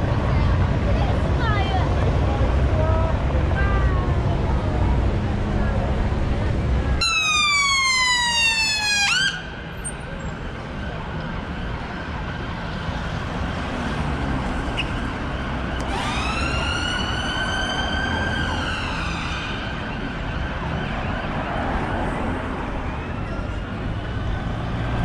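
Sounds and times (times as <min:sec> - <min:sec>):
street noise: 0:00.0 - 0:25.0
siren wailing: 0:07.0 - 0:09.7, 0:15.0 - 0:24.2.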